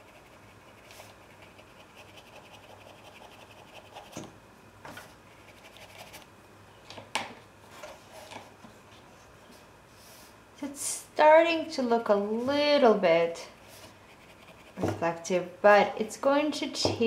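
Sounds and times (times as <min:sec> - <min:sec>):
brush scratching on paper: 0:00.0 - 0:04.2, 0:05.4 - 0:06.2, 0:13.7 - 0:14.8.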